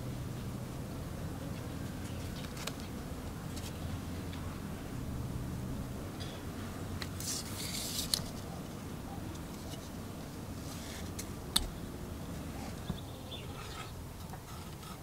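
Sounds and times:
low background rumble: 0:00.0 - 0:14.7
paper rustle: 0:02.2 - 0:02.9, 0:07.2 - 0:08.5.

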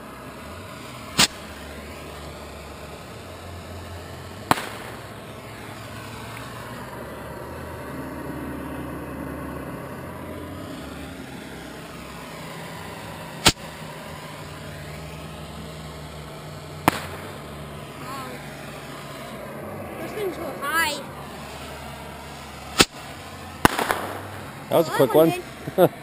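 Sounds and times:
low motor hum: 0:00.0 - 0:26.0
bottle rockets bursting: 0:00.8 - 0:01.6, 0:04.4 - 0:05.3, 0:13.3 - 0:14.3, 0:16.8 - 0:17.9, 0:22.2 - 0:24.4.

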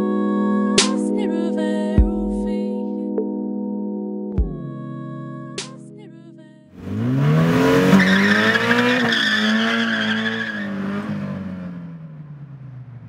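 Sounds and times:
car engine revving: 0:06.8 - 0:13.0
tyres squealing: 0:07.8 - 0:11.1.

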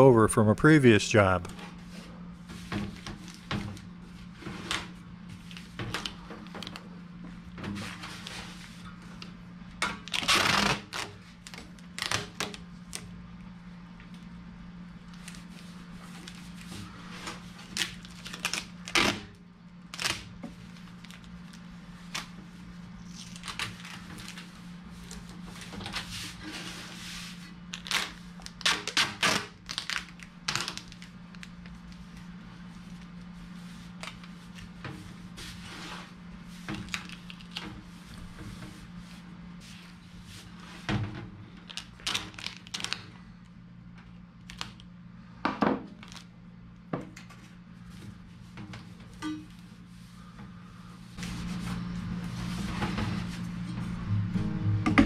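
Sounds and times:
steady low hum: 0:00.0 - 0:10.1, 0:46.3 - 0:55.0.

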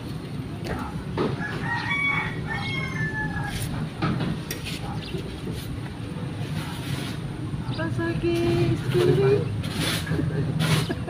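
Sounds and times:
rooster crowing: 0:01.4 - 0:03.8.

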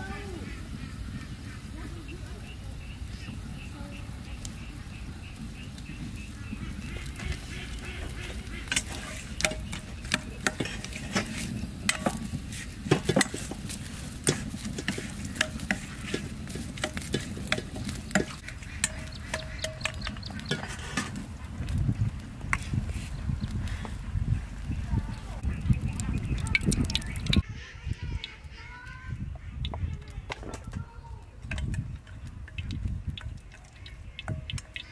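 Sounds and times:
chopsticks scraping a steel bowl: 0:06.6 - 0:21.4.

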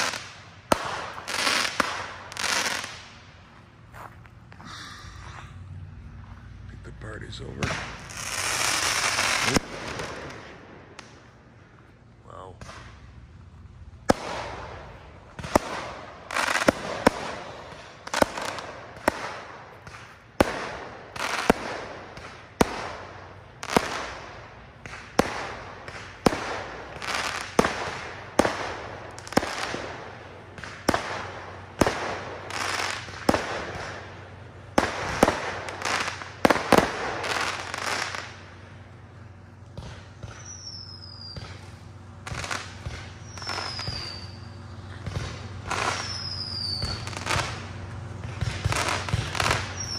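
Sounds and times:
fireworks bangs with crackling: 0:00.0 - 0:04.3, 0:06.8 - 0:49.9
falling whistle: 0:43.2 - 0:44.5, 0:45.9 - 0:47.0.

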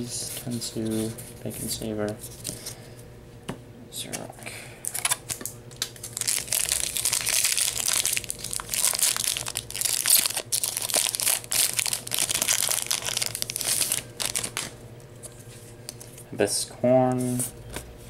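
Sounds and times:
foil wrapper crackling: 0:04.8 - 0:14.8.

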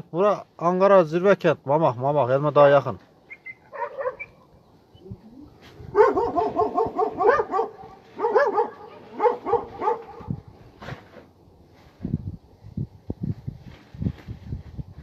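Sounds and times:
dogs barking: 0:03.5 - 0:04.5, 0:05.9 - 0:10.4.

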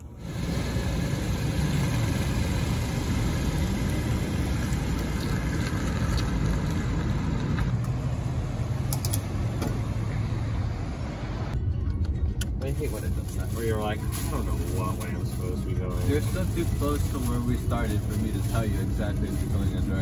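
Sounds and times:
car engine driving off: 0:00.0 - 0:11.6
road noise: 0:00.0 - 0:20.0.

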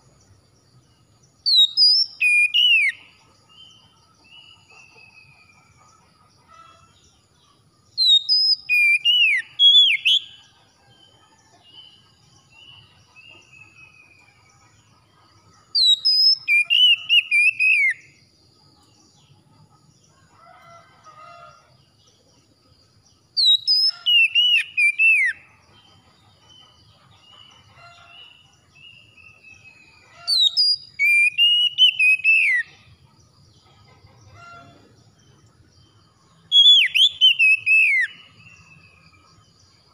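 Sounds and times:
bird singing whistled phrases: 0:01.5 - 0:03.0, 0:08.0 - 0:10.3, 0:15.8 - 0:18.0, 0:23.4 - 0:25.4, 0:30.3 - 0:32.7, 0:36.5 - 0:38.2.

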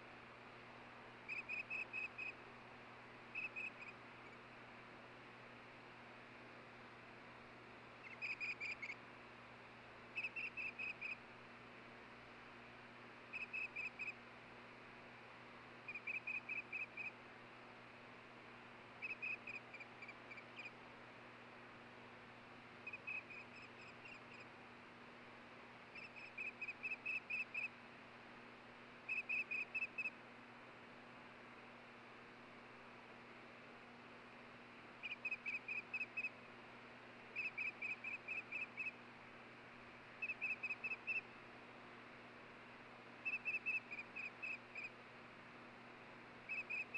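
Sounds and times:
faint steady hiss: 0:00.0 - 0:46.9
osprey chirping: 0:01.3 - 0:02.4, 0:03.3 - 0:04.4, 0:08.0 - 0:09.0, 0:10.1 - 0:11.2, 0:13.3 - 0:14.2, 0:15.9 - 0:17.2, 0:19.0 - 0:20.8, 0:22.8 - 0:24.5, 0:25.9 - 0:27.7, 0:29.1 - 0:30.2, 0:35.0 - 0:36.4, 0:37.4 - 0:39.0, 0:40.2 - 0:41.3, 0:43.2 - 0:44.9, 0:46.5 - 0:46.9.

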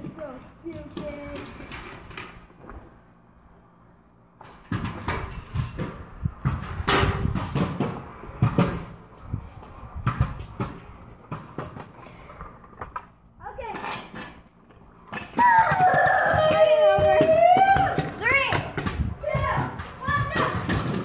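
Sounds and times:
objects knocking and clattering: 0:14.1 - 0:21.0.

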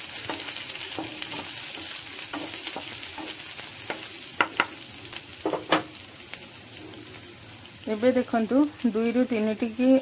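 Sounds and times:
spatula scraping a pan: 0:00.0 - 0:04.8
food sizzling in hot oil: 0:00.0 - 0:10.0.

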